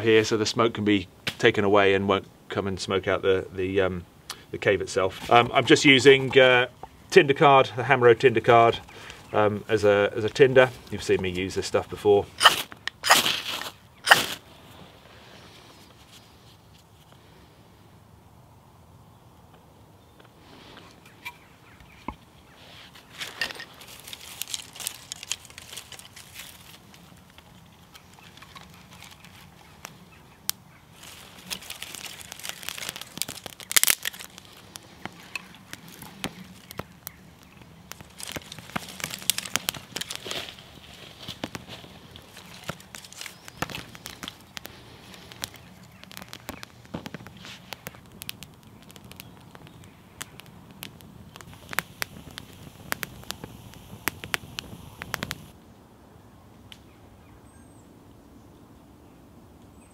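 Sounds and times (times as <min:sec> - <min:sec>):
campfire crackling and popping: 0:04.0 - 0:14.6, 0:23.1 - 0:55.6.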